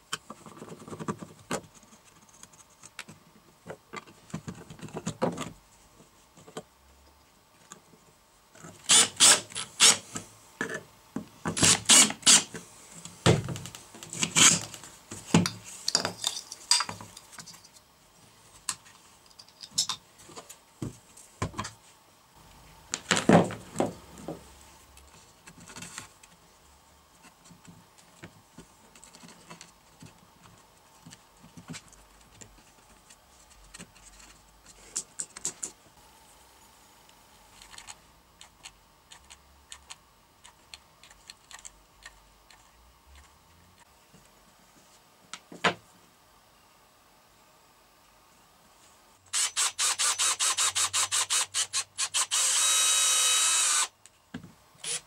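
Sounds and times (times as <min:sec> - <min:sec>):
clicks and knocks of handling parts: 0:12.5 - 0:17.9, 0:18.6 - 0:21.8, 0:31.0 - 0:35.8.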